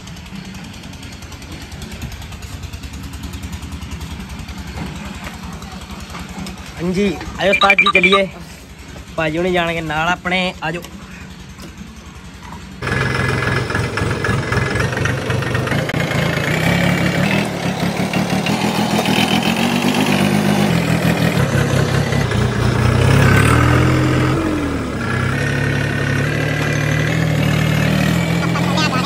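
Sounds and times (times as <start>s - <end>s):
tractor diesel engine running: 8.6s - 29.0s.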